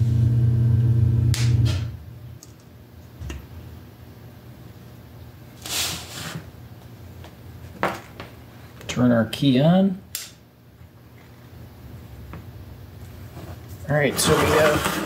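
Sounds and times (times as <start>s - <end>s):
hand scraping over wires: 13.2s - 15.0s.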